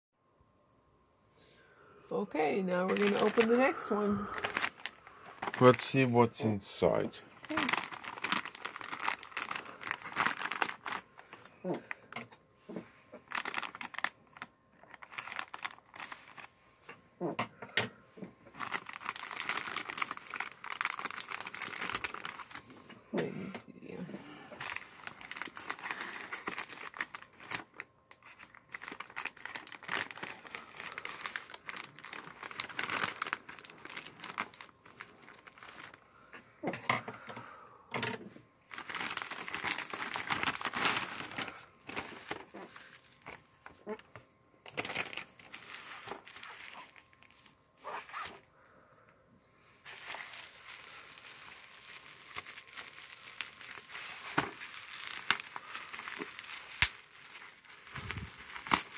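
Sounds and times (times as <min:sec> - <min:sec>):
plastic mailer crinkling: 0:02.3 - 0:16.6, 0:18.4 - 0:23.0, 0:24.2 - 0:36.0, 0:38.7 - 0:48.5, 0:49.8 - 0:58.9
plastic tearing: 0:02.8 - 0:16.5, 0:18.5 - 0:22.6, 0:24.5 - 0:36.0, 0:38.7 - 0:48.5, 0:49.9 - 0:58.9.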